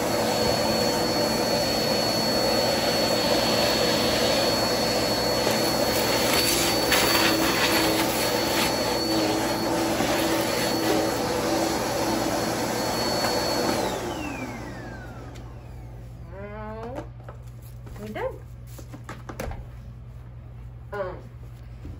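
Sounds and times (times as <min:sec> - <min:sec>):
vacuum cleaner running: 0:00.0 - 0:17.0.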